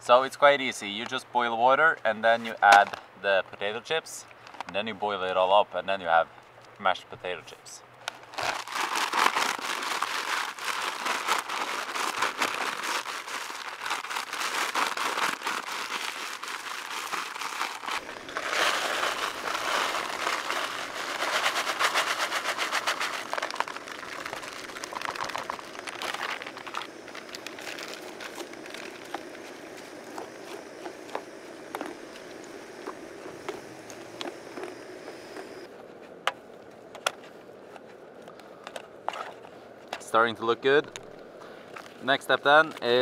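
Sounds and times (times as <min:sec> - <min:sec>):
chip bag crinkling: 0:08.1 - 0:35.7
chips pouring into a pot: 0:08.3 - 0:29.5.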